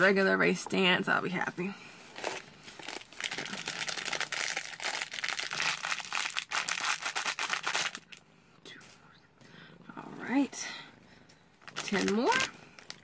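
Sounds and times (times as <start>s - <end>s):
plastic bag crinkling: 2.0s - 8.2s, 11.6s - 13.0s.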